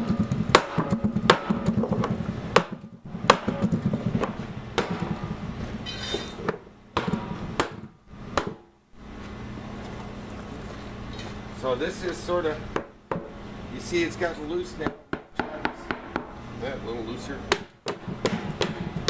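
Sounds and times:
high metallic ringing: 0:05.8 - 0:06.4
hammer knocking on steel hoop: 0:14.8 - 0:16.4.

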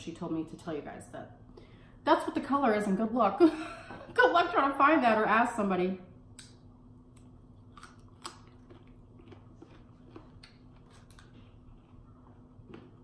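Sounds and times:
steady low hum: 0:00.0 - 0:13.0
person chewing food: 0:07.1 - 0:13.0.

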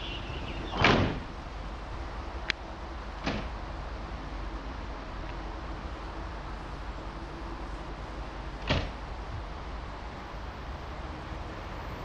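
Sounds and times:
low rumble of standing train: 0:00.0 - 0:12.0
train door slamming: 0:00.5 - 0:01.4, 0:03.2 - 0:03.6, 0:08.6 - 0:09.0.

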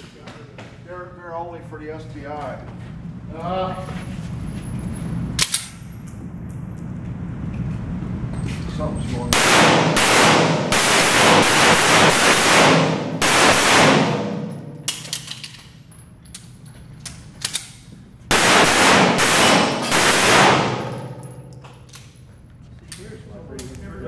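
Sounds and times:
pistol shots echoing indoors: 0:09.3 - 0:15.6, 0:17.4 - 0:22.0.

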